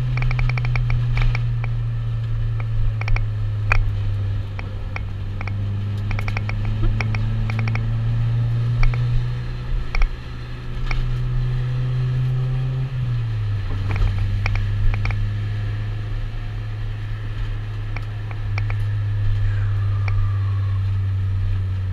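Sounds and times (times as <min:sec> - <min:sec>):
interior clicks and rattles: 0:00.0 - 0:11.3, 0:13.6 - 0:15.3, 0:17.3 - 0:20.2
car engine droning: 0:00.0 - 0:21.9.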